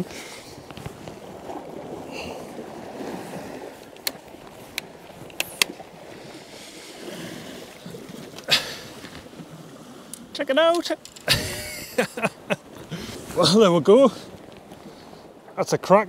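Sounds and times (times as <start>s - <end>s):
sea waves washing against rocks: 0.0s - 16.0s
sharp clicks: 4.0s - 5.7s
wind noise: 10.7s - 15.1s.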